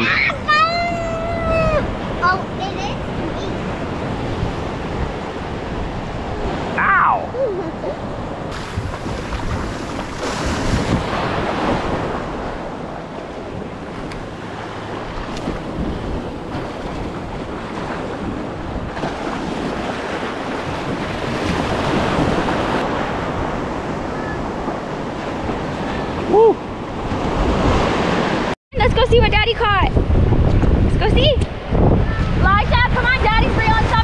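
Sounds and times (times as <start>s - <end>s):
ocean surf washing in: 0.0s - 28.9s, 29.9s - 34.0s
wind buffeting microphone: 0.0s - 34.0s.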